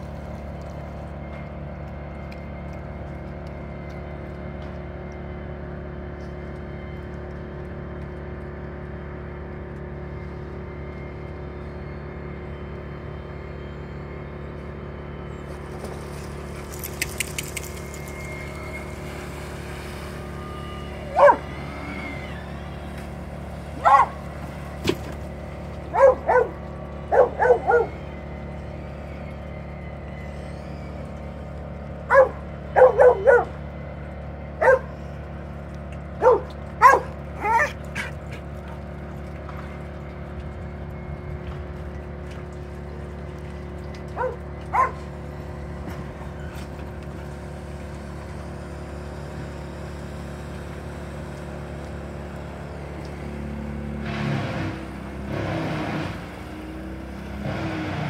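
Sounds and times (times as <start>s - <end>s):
steady low hum: 0.0s - 55.5s
dog barking and yipping: 21.1s - 21.5s, 23.8s - 24.2s, 25.9s - 28.0s, 32.1s - 33.5s, 34.6s - 34.9s, 36.2s - 38.1s, 44.2s - 45.0s.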